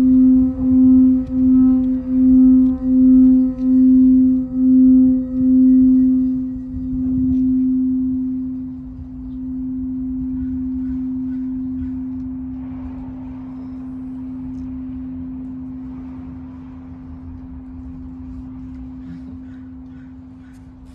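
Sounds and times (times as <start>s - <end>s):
singing bowl ringing: 0.0s - 16.8s.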